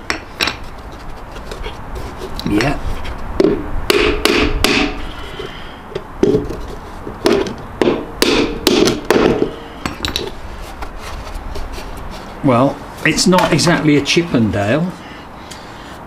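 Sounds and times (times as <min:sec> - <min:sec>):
hammer driving nails into wood: 0:03.4 - 0:05.0, 0:07.2 - 0:10.3.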